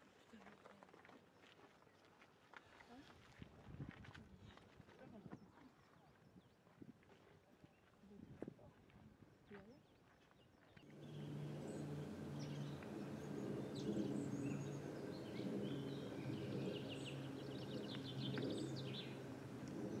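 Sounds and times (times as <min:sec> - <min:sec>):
small birds singing: 0:10.7 - 0:20.0
steady low hum: 0:10.8 - 0:20.0.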